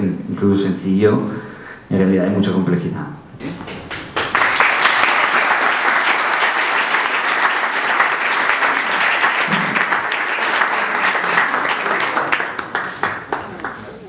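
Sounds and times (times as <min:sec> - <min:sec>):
audience applauding: 0:03.4 - 0:14.0.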